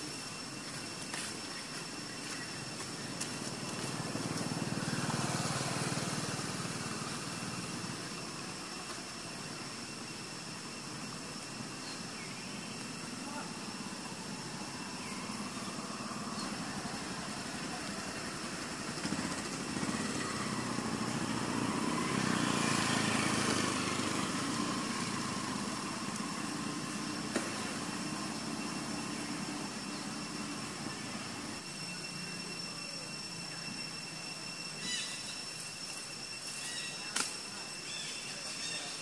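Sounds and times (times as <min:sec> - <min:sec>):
motor vehicle passing: 0:18.1 - 0:29.0.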